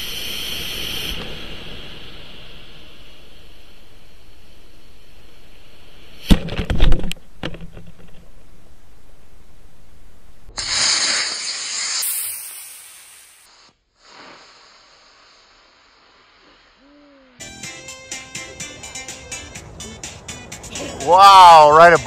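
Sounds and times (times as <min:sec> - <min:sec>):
rocket motor firing with loud hiss: 0:00.0 - 0:04.2, 0:10.6 - 0:16.8
camera hiss: 0:10.6 - 0:16.8.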